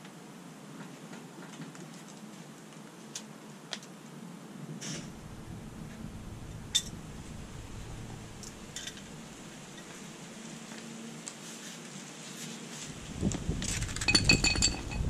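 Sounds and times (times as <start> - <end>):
faint steady background noise: 0.0 - 15.0
metal tools clinking on floor: 14.0 - 15.0.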